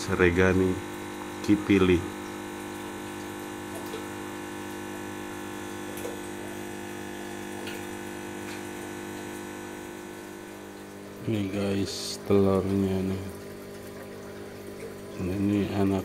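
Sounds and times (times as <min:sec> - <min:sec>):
aquarium pump humming: 0:00.0 - 0:16.0
water noise: 0:00.0 - 0:16.0.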